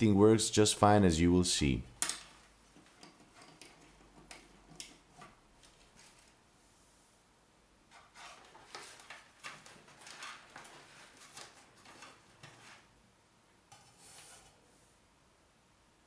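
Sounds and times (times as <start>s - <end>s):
cords rustling and scraping: 2.0s - 6.4s, 7.9s - 13.0s, 13.7s - 14.9s.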